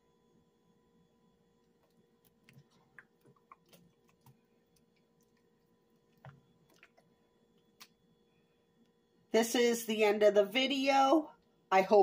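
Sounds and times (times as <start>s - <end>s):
spoon stirring thick sauce: 1.6s - 7.2s.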